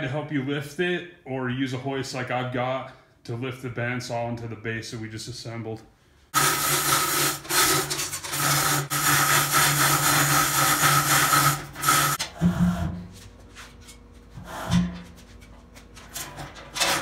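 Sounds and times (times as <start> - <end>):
electric hoist motor humming: 6.4 - 13.0.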